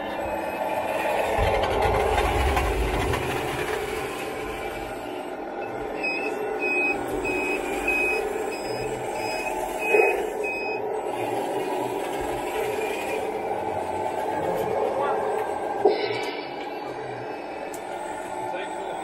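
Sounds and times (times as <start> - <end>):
simulated diesel engine drone: 0.0 - 19.0
reversing alarm beeps: 5.5 - 10.9.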